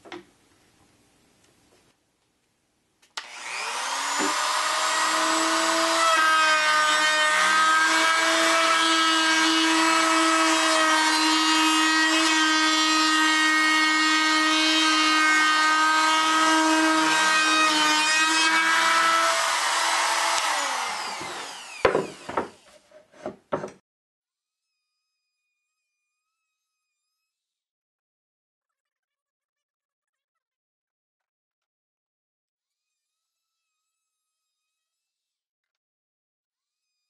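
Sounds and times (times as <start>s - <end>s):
router whining while cutting wood: 3.2s - 23.7s
knocks: 21.8s - 22.6s, 23.2s - 23.8s.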